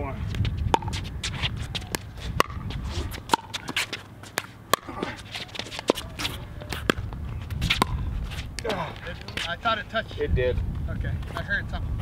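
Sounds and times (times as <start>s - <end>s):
shoes scuffing on hard court: 0.3s - 9.7s.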